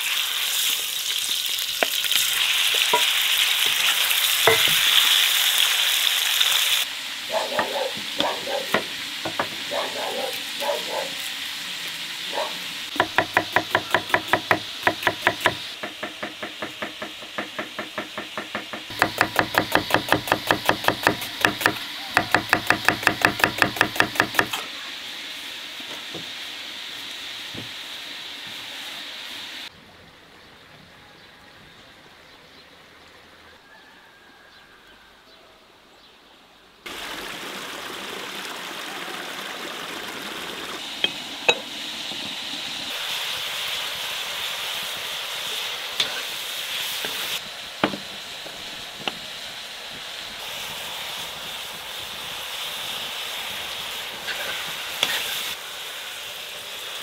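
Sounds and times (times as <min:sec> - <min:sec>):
outdoor background: 0:00.0 - 0:57.0
clay pot lids clinking: 0:04.5 - 0:04.8, 0:41.0 - 0:41.7
knife chopping on wooden board: 0:13.0 - 0:24.6.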